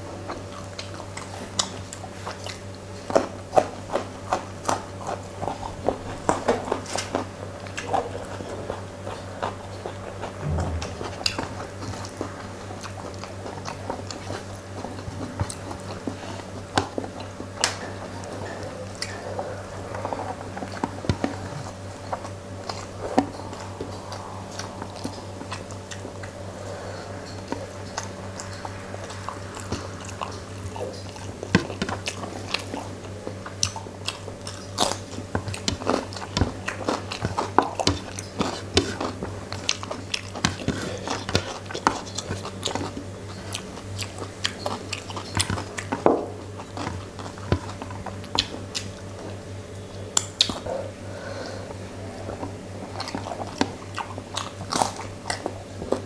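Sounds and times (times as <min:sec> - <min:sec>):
steady low hum: 0:00.0 - 0:56.0
chewing with wet mouth clicks: 0:00.3 - 0:08.5, 0:26.7 - 0:49.3, 0:53.0 - 0:56.0.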